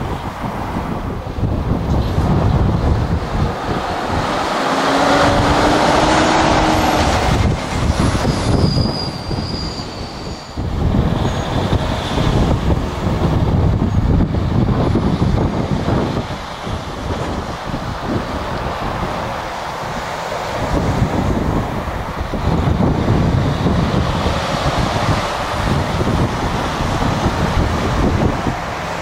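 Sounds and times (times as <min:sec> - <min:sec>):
diesel lorry engine: 0:00.0 - 0:29.0
heavy metal rumble: 0:00.0 - 0:29.0
brief high squeals: 0:08.0 - 0:11.6.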